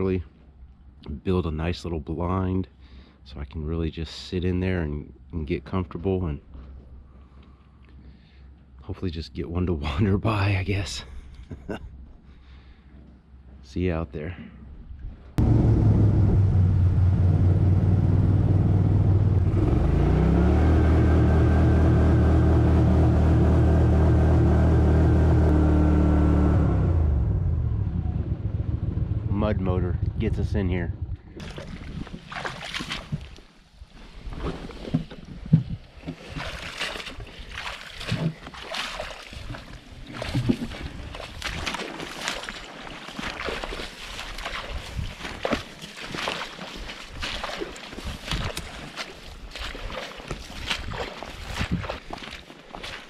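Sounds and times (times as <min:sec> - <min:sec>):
boat motor running: 0:15.4 - 0:30.2
splashy thuds: 0:31.4 - 0:33.4, 0:34.4 - 0:53.0
footsteps through wet grass and water: 0:31.4 - 0:53.0.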